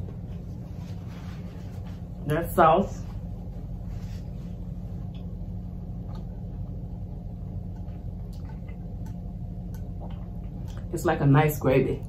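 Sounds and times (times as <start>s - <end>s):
steady low hum: 0.0s - 12.0s
chewing: 7.8s - 10.9s.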